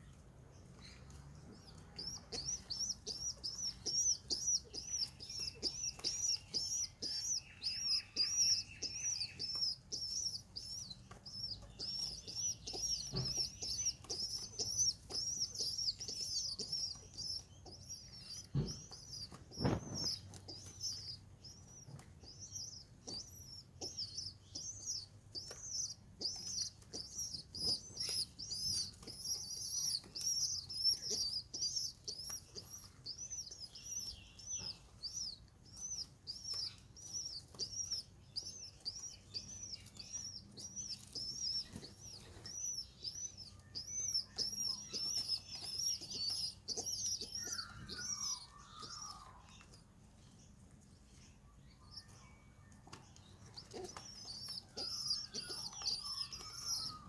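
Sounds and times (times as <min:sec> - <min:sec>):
pigeon squabs peeping: 0:01.6 - 0:49.9, 0:52.8 - 0:57.0
wing fluttering and rustling: 0:18.5 - 0:22.2.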